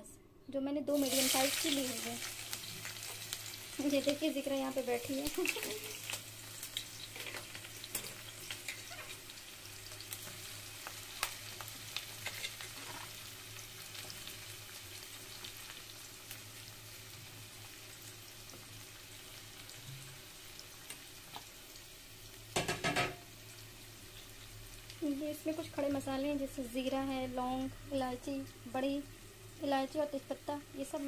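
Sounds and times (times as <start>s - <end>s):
onions sizzling in hot oil: 0.9s - 31.0s.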